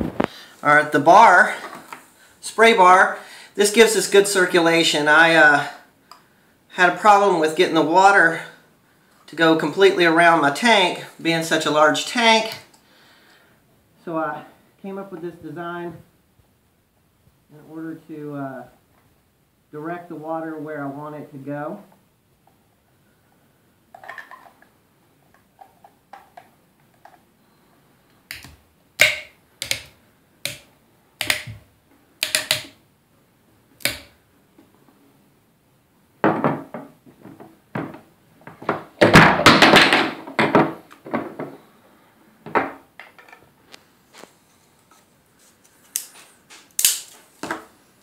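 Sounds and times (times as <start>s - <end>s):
plastic pipe fittings clicking: 28.3s - 31.6s, 32.2s - 32.8s.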